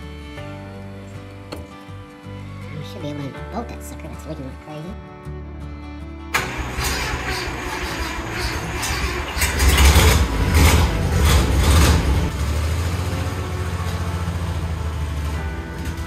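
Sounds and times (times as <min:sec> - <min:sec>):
truck engine revving and idling: 0:06.3 - 0:16.0.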